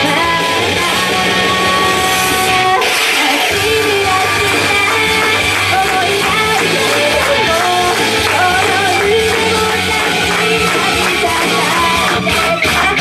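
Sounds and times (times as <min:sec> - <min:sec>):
rock band with guitar: 0:00.0 - 0:13.0
woman singing rock song: 0:00.0 - 0:13.0.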